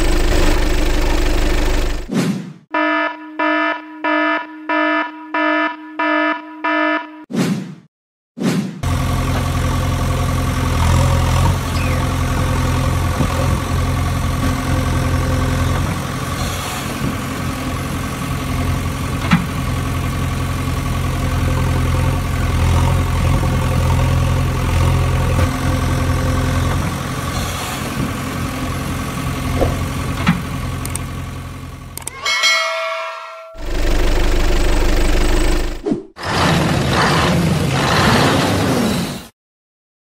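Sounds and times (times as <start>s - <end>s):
diesel engine running: 0.0s - 2.1s, 8.8s - 32.1s, 33.6s - 37.0s
sharp clicks: 30.8s - 31.1s.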